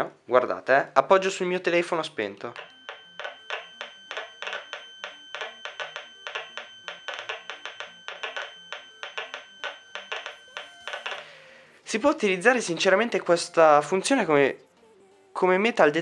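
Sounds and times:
faint steady high tone: 0:01.8 - 0:15.9
fast uneven clicks from speaker: 0:02.6 - 0:11.3.

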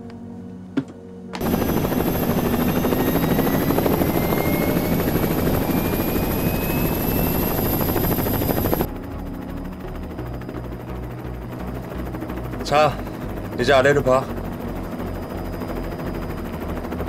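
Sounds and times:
faint rising whine: 0:01.1 - 0:17.0
helicopter rotor and engine: 0:01.3 - 0:17.0.

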